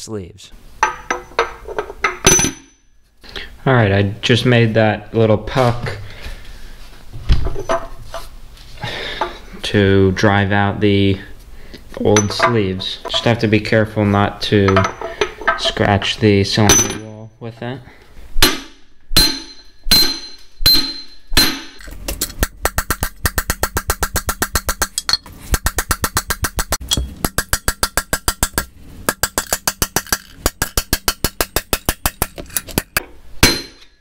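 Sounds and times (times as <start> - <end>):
hammer striking steel drift: 18.4 - 21.8.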